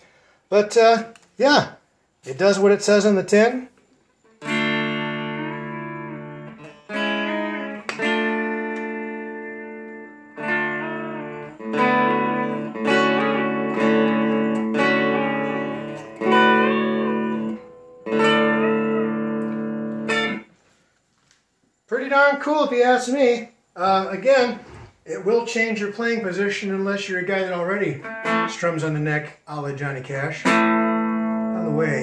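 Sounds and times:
electric guitar chords with bends: 0:04.3 - 0:20.5, 0:28.0 - 0:28.8, 0:30.4 - 0:32.0.

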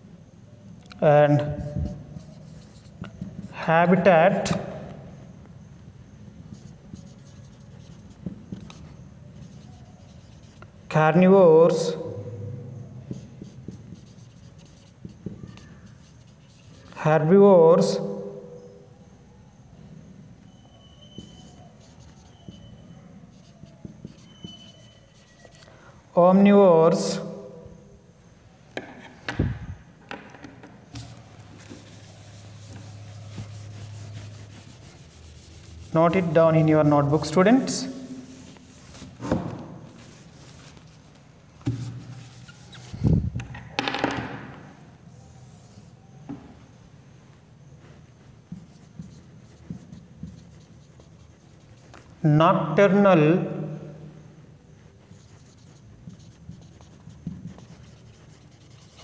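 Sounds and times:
marker scratching on whiteboard: 0:01.4 - 0:04.9, 0:06.4 - 0:18.7, 0:20.5 - 0:25.8, 0:30.1 - 0:43.4, 0:44.3 - 0:46.3, 0:47.8 - 0:53.0, 0:53.8 - 0:59.0
knocks on whiteboard: 0:30.1 - 0:30.7.

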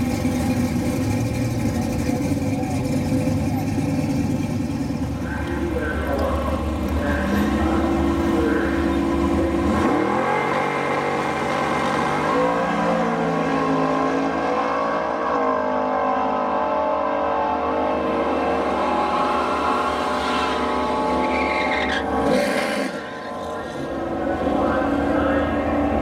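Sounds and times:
car engines revving: 0:00.0 - 0:26.0.

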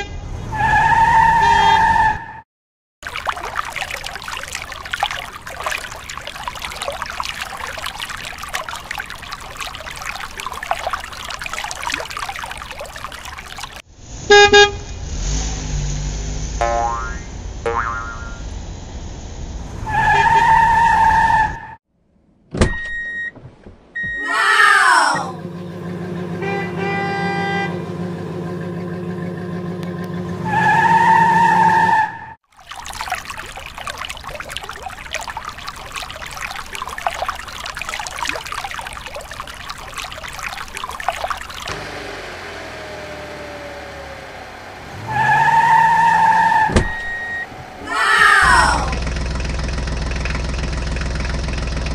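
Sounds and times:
car horn sound effect: 0:01.3 - 0:02.1, 0:14.3 - 0:14.9, 0:26.3 - 0:28.1
water pouring and splashing: 0:03.0 - 0:13.9, 0:32.4 - 0:51.9
car engine running: 0:25.4 - 0:30.5, 0:41.7 - 0:45.1, 0:48.9 - 0:51.9.

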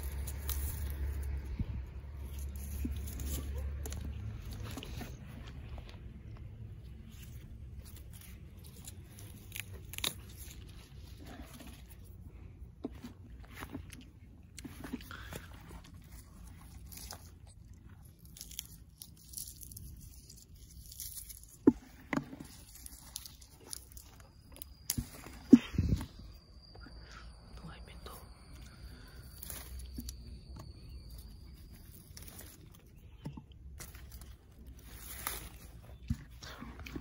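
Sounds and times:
low rumble: 0:00.0 - 0:18.4.

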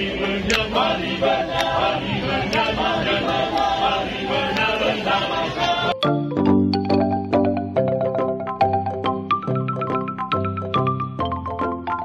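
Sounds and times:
male choir singing a cappella: 0:00.0 - 0:06.0
sharp tap keeping time: 0:00.4 - 0:05.0.

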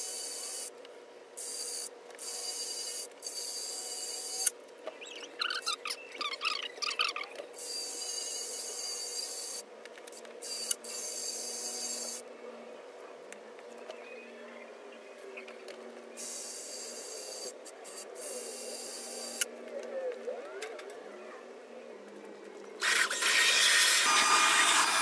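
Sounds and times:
drill whining and scraping: 0:16.2 - 0:19.5, 0:22.8 - 0:25.0.

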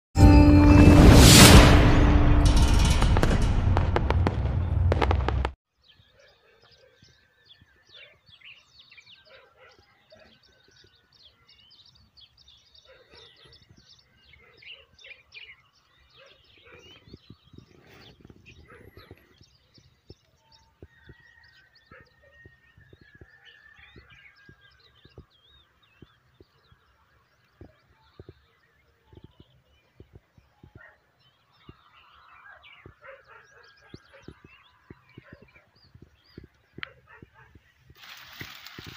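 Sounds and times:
intro music: 0:00.2 - 0:05.5
birds chirping: 0:05.7 - 0:38.9.

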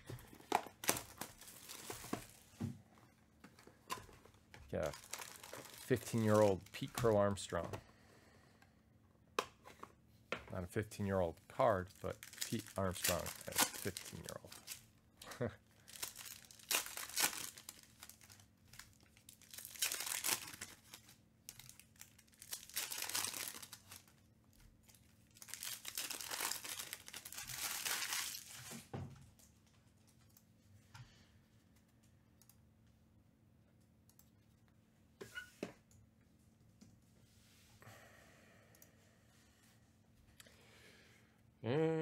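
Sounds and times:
plastic wrappers torn and crumpled: 0:00.3 - 0:02.4, 0:04.8 - 0:07.2, 0:11.8 - 0:14.8, 0:15.8 - 0:24.2, 0:24.8 - 0:28.8.

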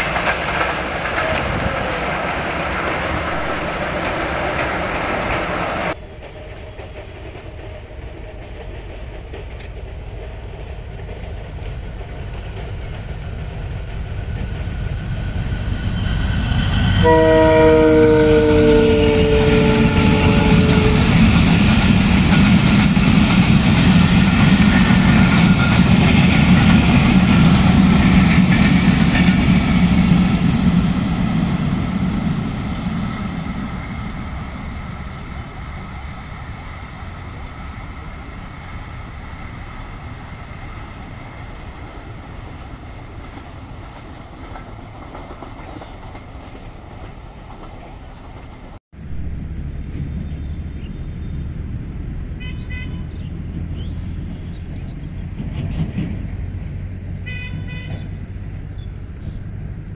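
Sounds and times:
train coaches rumbling and clattering: 0:00.0 - 0:59.9
locomotive horn: 0:17.0 - 0:21.3, 0:52.4 - 0:53.2, 0:57.2 - 0:58.2.

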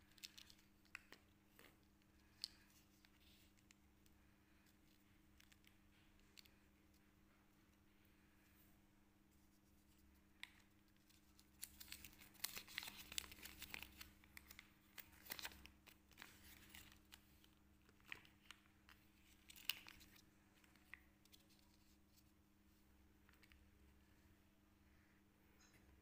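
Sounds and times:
plastic wrapper crinkling and tearing: 0:00.0 - 0:03.7, 0:10.4 - 0:22.2.

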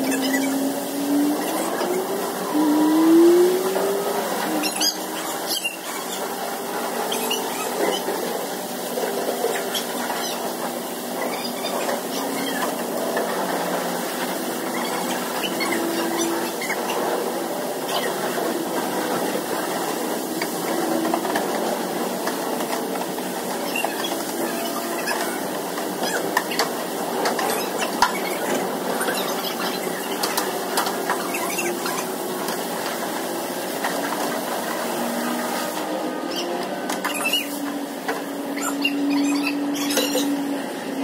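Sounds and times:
squeaks and clicks: 0:00.0 - 0:00.6, 0:04.5 - 0:06.3, 0:07.0 - 0:08.2, 0:09.4 - 0:13.6, 0:14.6 - 0:17.1, 0:23.5 - 0:32.6, 0:36.3 - 0:37.6, 0:38.4 - 0:40.4.

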